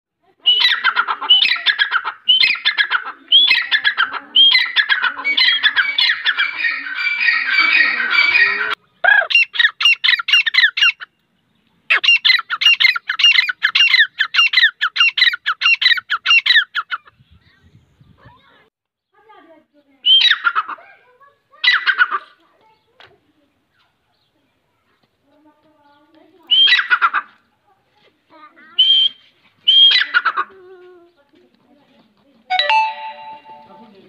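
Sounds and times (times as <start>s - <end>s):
francolins calling: 0.4s - 11.2s, 11.9s - 17.6s.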